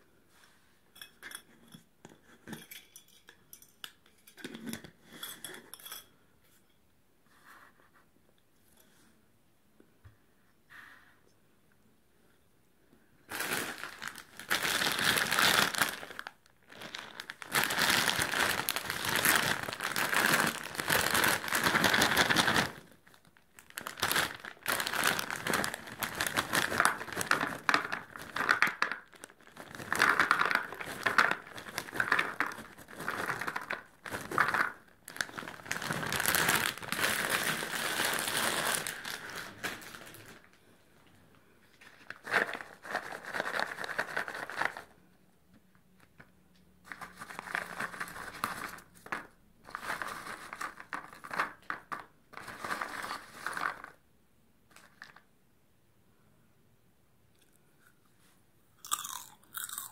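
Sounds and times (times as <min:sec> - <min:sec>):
plastic bag crinkling: 0:13.3 - 0:40.6, 0:41.8 - 0:45.0, 0:46.9 - 0:54.0, 0:54.7 - 0:55.3
popcorn pouring into plastic tub: 0:47.2 - 0:54.0.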